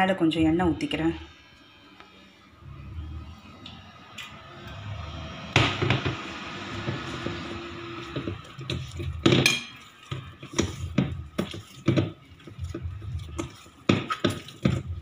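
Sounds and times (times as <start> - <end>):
dough knocking against metal bowl: 5.6 - 15.0.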